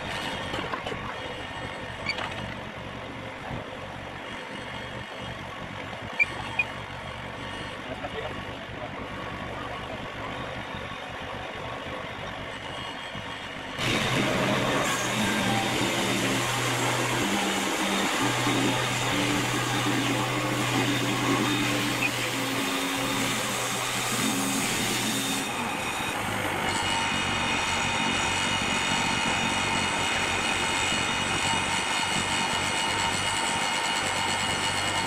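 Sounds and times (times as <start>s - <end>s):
band sawmill running: 0.0s - 35.0s.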